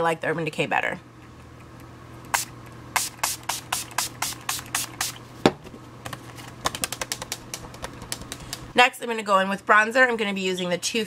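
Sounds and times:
pump spray bottle misting: 2.3s - 5.2s.

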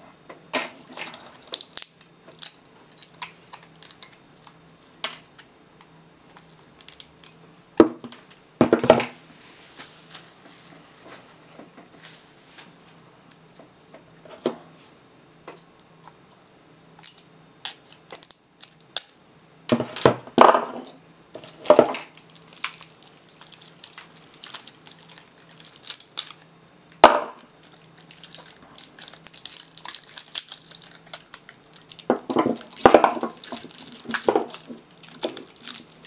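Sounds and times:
scrape: 9.2s - 12.8s.

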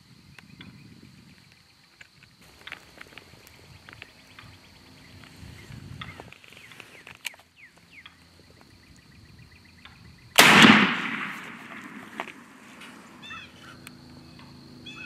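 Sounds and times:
shotgun blast with echo: 10.4s - 13.2s.

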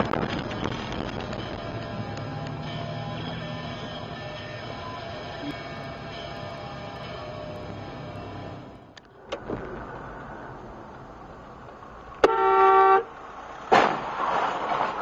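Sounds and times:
car horn blaring: 12.2s - 13.1s
car collision bang: 13.6s - 15.0s.

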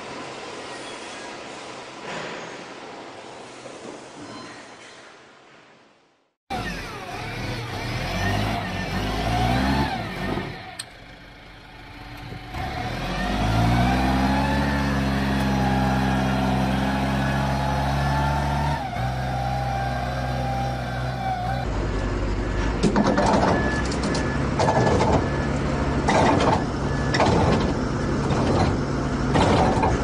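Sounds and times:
forklift engine revving: 6.5s - 30.0s.

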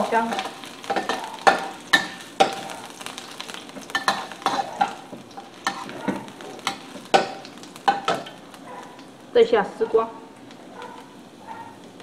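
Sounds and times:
ginger sizzling in hot oil: 0.0s - 12.0s
metal spatula scraping wok: 3.8s - 7.3s.

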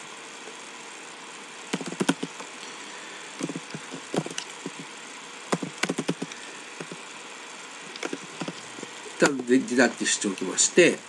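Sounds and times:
background hiss: 0.0s - 11.0s
keyboard keys clicking: 1.8s - 2.4s, 3.4s - 4.8s, 5.5s - 7.0s, 8.0s - 8.6s.

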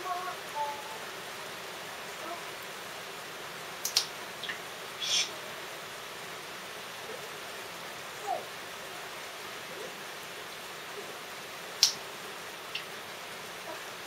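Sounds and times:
rain falling: 0.0s - 14.0s
sharp click: 3.8s - 4.1s.

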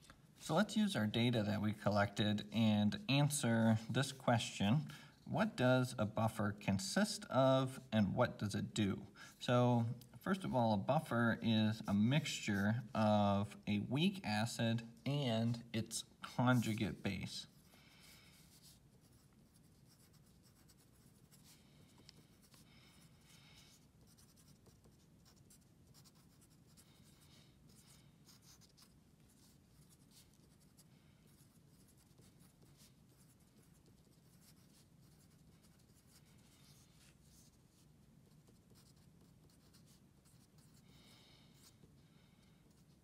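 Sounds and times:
pencil scratching on paper: 16.3s - 41.9s, 42.6s - 43.0s.

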